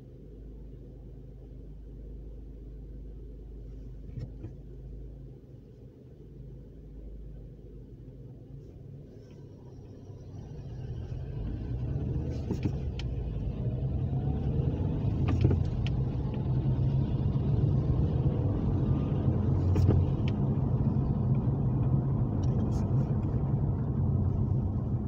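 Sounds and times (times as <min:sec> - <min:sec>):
car engine and tyre rumble: 0:00.0 - 0:25.0
faint whine rising in pitch: 0:08.6 - 0:25.0.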